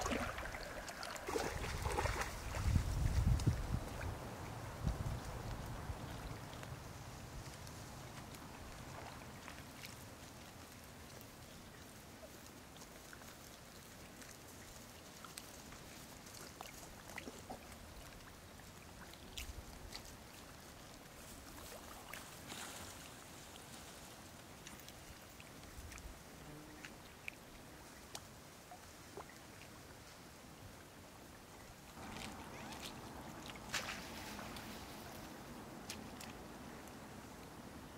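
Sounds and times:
small water splashes and drips: 0:00.0 - 0:37.7
steady low hiss: 0:19.5 - 0:37.9.

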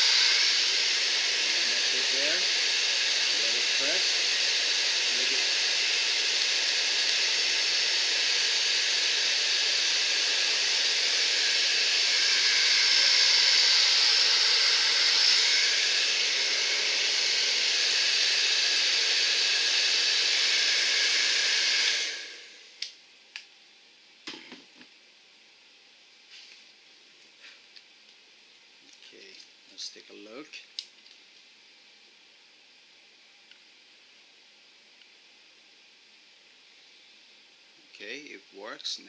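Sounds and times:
hair dryer blowing: 0:00.0 - 0:22.8.

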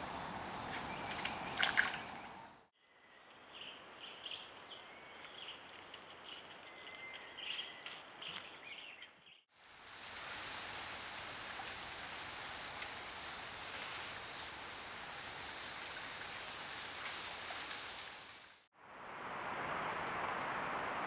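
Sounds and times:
insects droning at night: 0:09.5 - 0:20.1
even hiss: 0:09.6 - 0:18.7.

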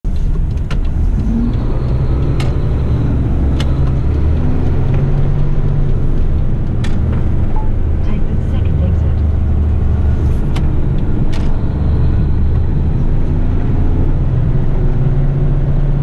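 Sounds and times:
diesel truck engine rumble: 0:00.0 - 0:16.0
sharp clicks or rattles: 0:00.1 - 0:07.5.

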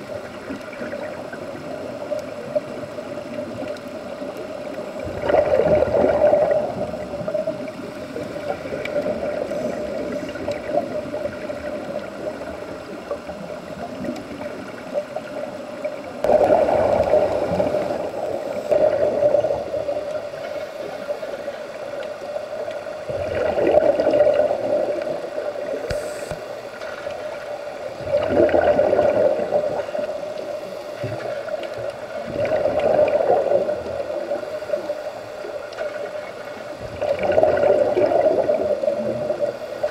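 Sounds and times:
steady hum: 0:00.0 - 0:39.9
bubbling exhalation underwater: 0:05.0 - 0:07.7, 0:16.2 - 0:19.9, 0:23.0 - 0:25.2, 0:28.0 - 0:30.0, 0:32.2 - 0:34.4, 0:36.8 - 0:39.5.

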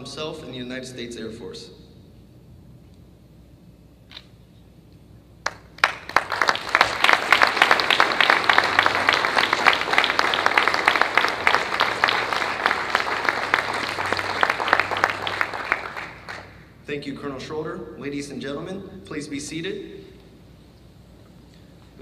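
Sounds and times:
audience applauding: 0:05.4 - 0:16.7.

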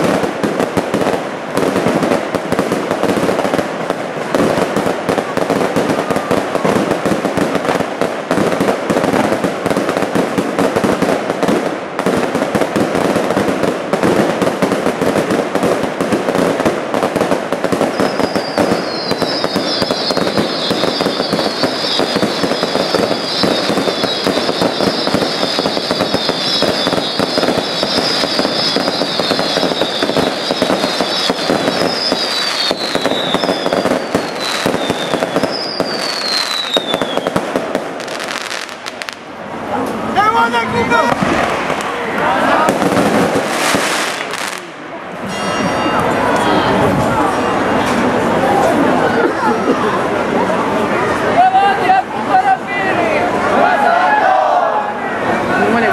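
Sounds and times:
firework bangs and crackling: 0:00.0 - 0:53.9
shrill falling whistles: 0:17.9 - 0:37.2.

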